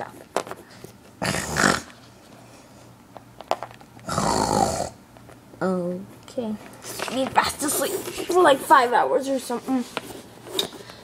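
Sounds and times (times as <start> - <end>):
child pretend snoring: 1.2 - 1.9, 4.0 - 5.0.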